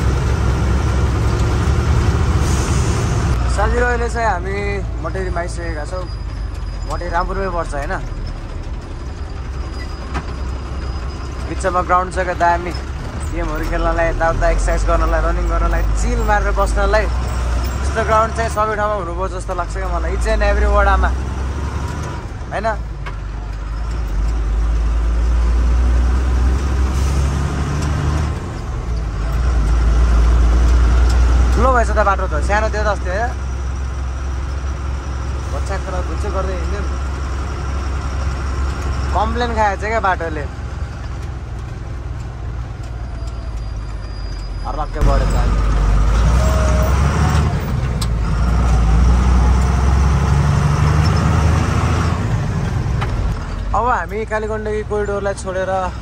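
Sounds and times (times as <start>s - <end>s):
road noise: 0.0s - 56.0s
truck engine running: 0.0s - 56.0s.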